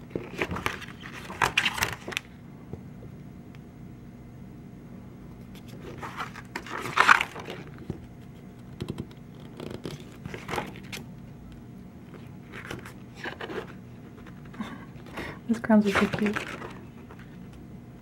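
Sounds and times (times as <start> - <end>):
glossy pages turning: 0.1 - 2.3, 5.5 - 8.0, 8.8 - 11.1, 12.1 - 15.1, 15.8 - 17.4.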